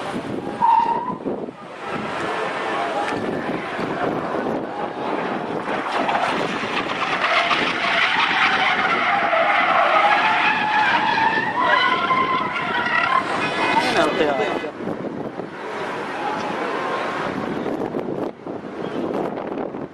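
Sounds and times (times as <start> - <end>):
car engine high revs: 0.2 - 14.7
tyres squealing: 0.4 - 14.7.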